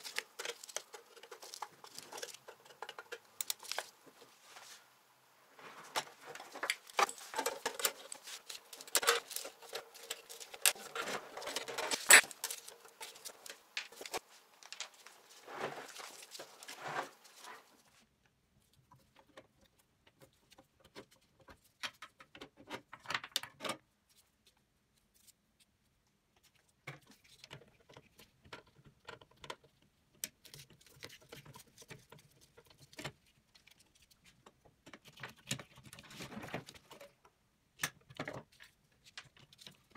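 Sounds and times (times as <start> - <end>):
metal parts clinking and scraping: 6.3 - 15.0.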